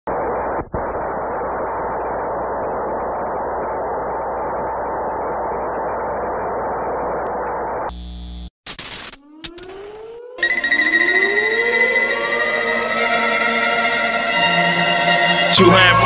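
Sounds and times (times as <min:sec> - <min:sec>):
muffled static hiss: 0:00.1 - 0:08.8
loud burst of static: 0:00.1 - 0:09.2.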